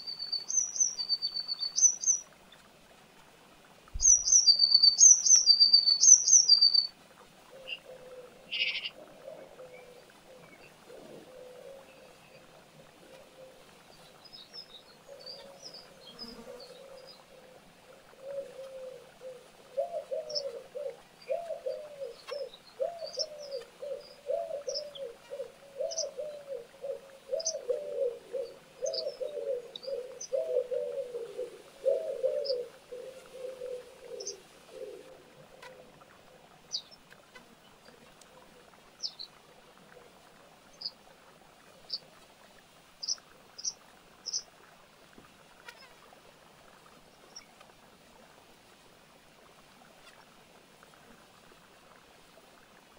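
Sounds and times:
low repeated animal calls: 7.5 - 13.8, 15.1 - 36.3.

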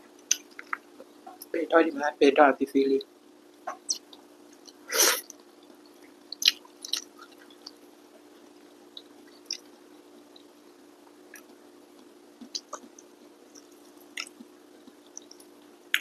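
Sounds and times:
low steady hum: 0.0 - 16.0
chewing with clicks: 0.3 - 1.5, 3.7 - 7.8, 12.4 - 16.0
wet mouthful: 12.4 - 12.9, 15.2 - 16.0.

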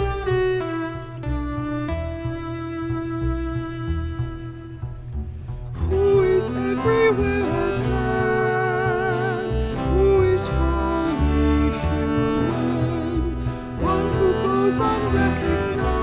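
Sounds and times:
acoustic guitar: 0.0 - 16.0
double bass: 0.0 - 16.0
viola: 0.0 - 16.0
woman singing: 5.8 - 16.0.

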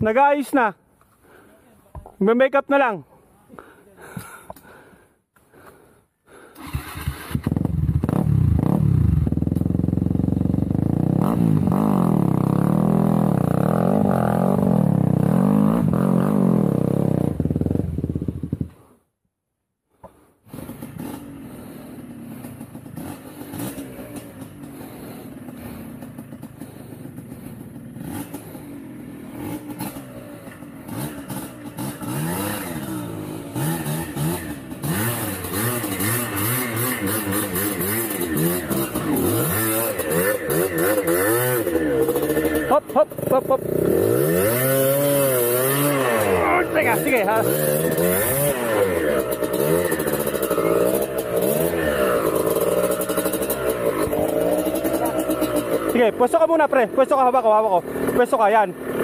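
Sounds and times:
motorcycle engine revving: 6.6 - 18.8, 20.4 - 59.0.

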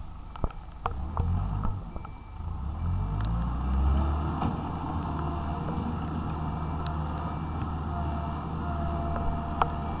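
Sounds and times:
diesel engine running: 0.0 - 10.0
faint light ticks: 3.1 - 3.9.

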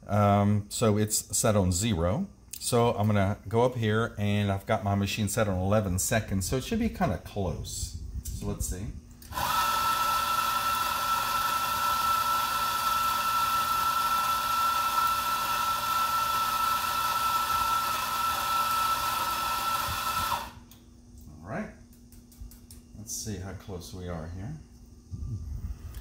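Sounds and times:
electric coffee grinder running: 9.2 - 20.6.

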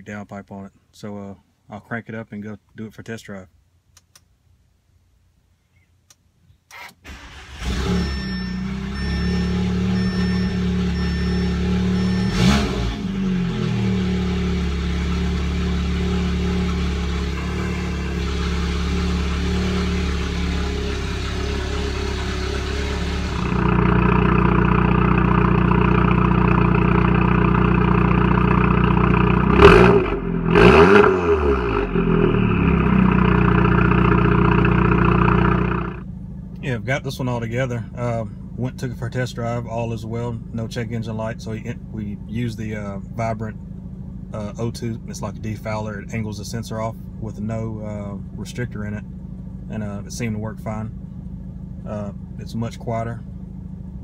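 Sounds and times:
engine revving: 7.1 - 36.0
car engine idling: 7.1 - 54.0.

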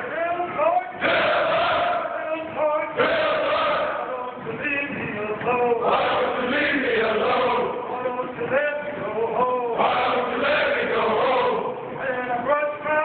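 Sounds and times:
men's choir singing: 0.8 - 4.4, 5.4 - 11.9.

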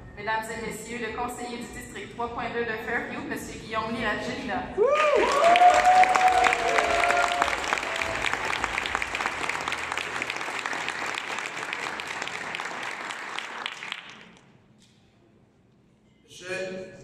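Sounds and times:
audience applauding: 4.8 - 14.5.

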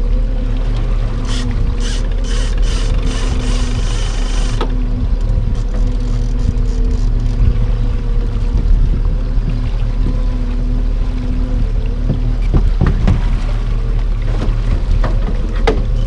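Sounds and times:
outboard motor running: 0.0 - 16.0
pulsing mechanical rattle: 1.1 - 7.8.

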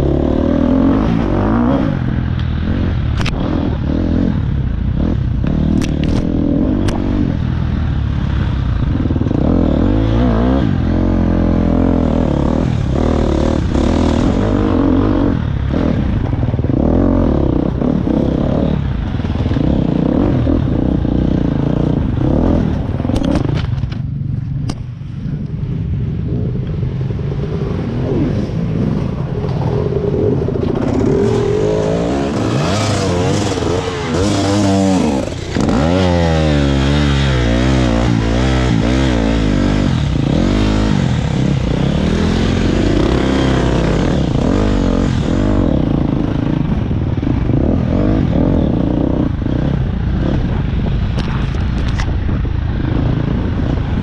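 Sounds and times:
vehicle engine running: 0.0 - 54.0
wind rushing: 24.9 - 54.0.

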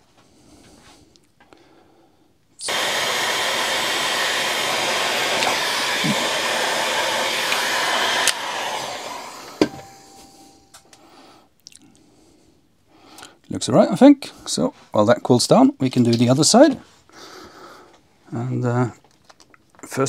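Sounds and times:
heat gun blowing air: 2.6 - 10.6
heat gun switch click: 5.3 - 6.3, 7.2 - 8.7.

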